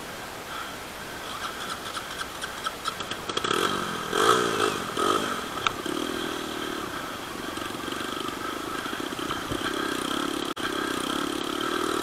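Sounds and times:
dirt bike engine revving: 3.0 - 12.0.

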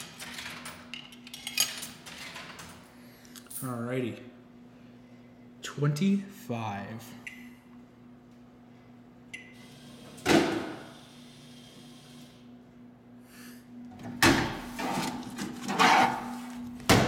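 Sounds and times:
vending motor clunk and whir: 0.0 - 3.0, 9.3 - 12.5, 13.8 - 17.0
machine low hum: 0.0 - 17.0.

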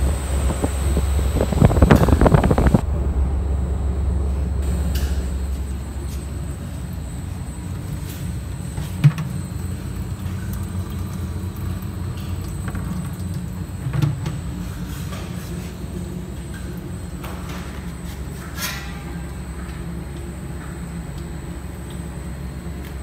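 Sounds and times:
electric motor humming: 0.0 - 2.8.

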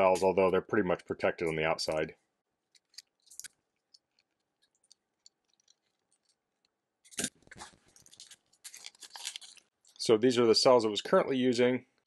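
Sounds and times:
plastic wrap crinkling: 2.8 - 10.2.

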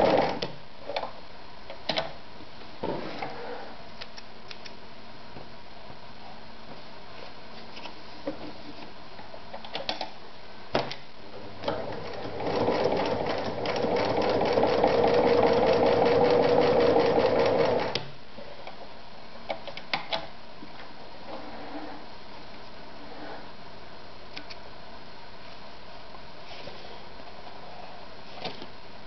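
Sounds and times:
electric sewing machine stitching: 11.7 - 18.0.

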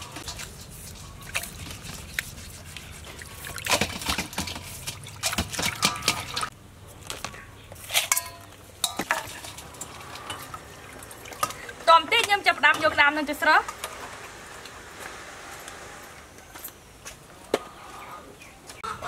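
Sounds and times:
scouring pad scrubbing: 0.0 - 5.2
water splashing in a steel bowl: 0.0 - 6.5, 8.1 - 13.9.

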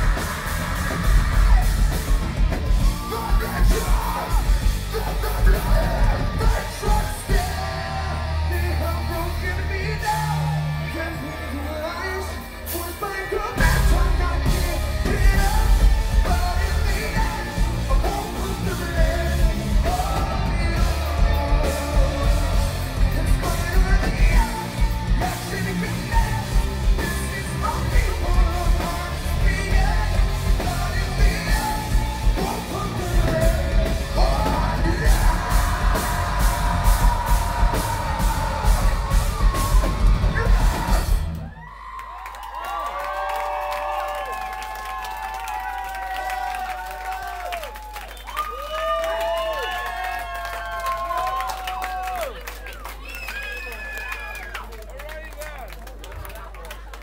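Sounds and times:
rock band playing loud: 0.0 - 41.6
crowd cheering and yelling: 0.0 - 57.0
person singing into a microphone: 11.2 - 41.3.

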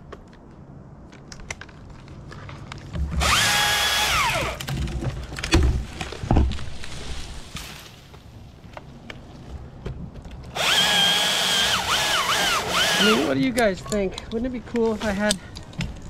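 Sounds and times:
chainsaw motor whine: 3.2 - 4.6, 10.5 - 13.4.

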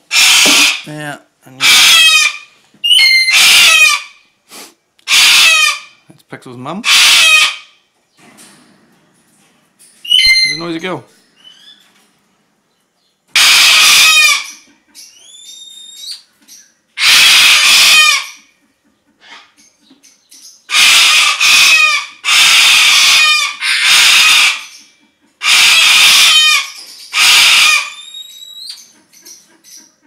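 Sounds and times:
parrot screeching: 0.1 - 0.9, 1.6 - 4.3, 5.0 - 6.0, 6.8 - 7.8, 10.0 - 10.8, 13.3 - 14.6, 17.0 - 18.4, 20.7 - 24.8, 25.4 - 28.9
small birds whistling: 2.8 - 3.6, 10.0 - 11.9, 14.6 - 16.8, 27.9 - 30.0.

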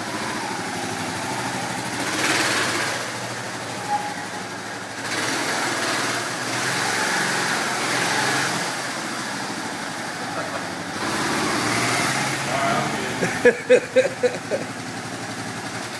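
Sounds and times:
small motorcycle passing: 10.3 - 13.6.

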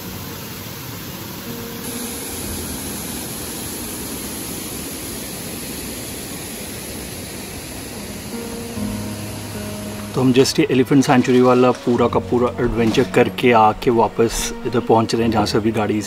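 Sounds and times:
waterfall pouring into pool: 0.0 - 10.5.

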